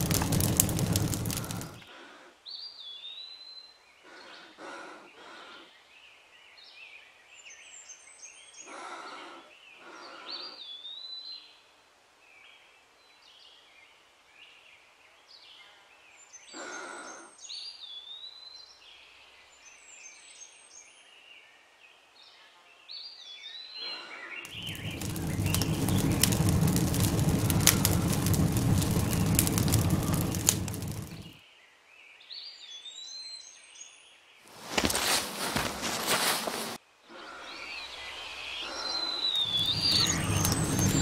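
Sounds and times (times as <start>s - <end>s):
birds chirping: 0.0s - 1.8s, 24.4s - 31.4s, 34.7s - 41.0s
loud crackling hiss: 0.0s - 1.9s, 24.5s - 31.4s, 34.5s - 36.8s, 37.4s - 41.0s.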